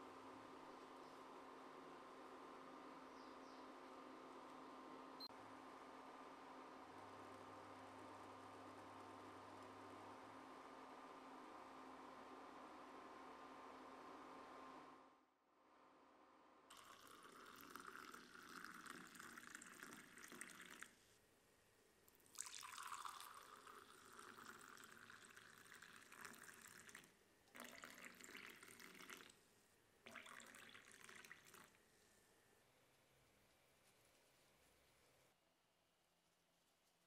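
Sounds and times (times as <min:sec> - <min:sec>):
tea pouring into glass mugs: 0:16.7 - 0:21.0, 0:22.1 - 0:29.4, 0:30.0 - 0:31.8.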